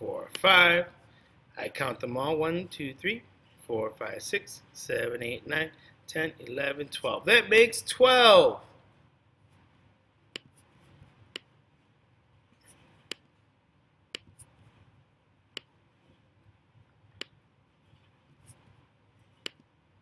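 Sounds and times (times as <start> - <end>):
faint room noise: 0.0 - 20.0
computer mouse clicking: 19.4 - 19.7.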